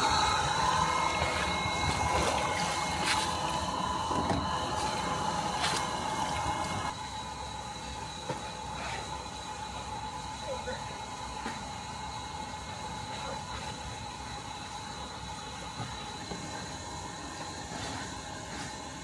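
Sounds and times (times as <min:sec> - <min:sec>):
water running and splashing: 0:00.0 - 0:06.9
steady machine hum: 0:00.0 - 0:19.0.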